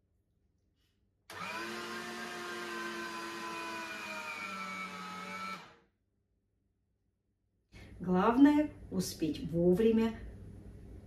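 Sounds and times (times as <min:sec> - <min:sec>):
meat grinder motor whining: 0:01.3 - 0:05.8.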